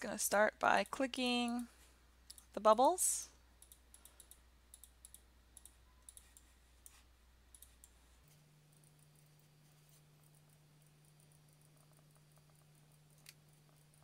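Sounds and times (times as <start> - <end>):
computer mouse clicking: 2.3 - 2.5, 3.6 - 8.0.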